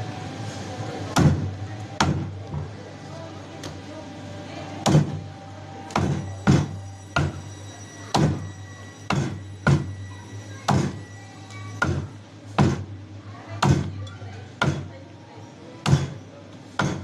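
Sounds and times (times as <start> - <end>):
cleaver chopping on wooden block: 15.8 - 16.2, 16.8 - 17.0.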